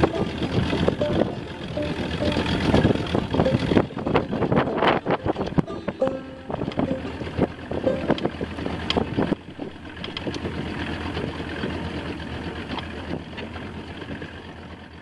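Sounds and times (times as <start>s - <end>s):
outboard motor: 0.0s - 15.0s
water rushing along hull: 0.0s - 15.0s
wind on microphone: 2.4s - 5.7s.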